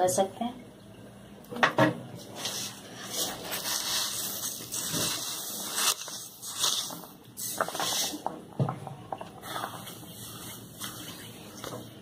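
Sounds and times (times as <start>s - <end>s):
rustling scrape in pan: 2.3s - 8.3s, 9.4s - 11.4s.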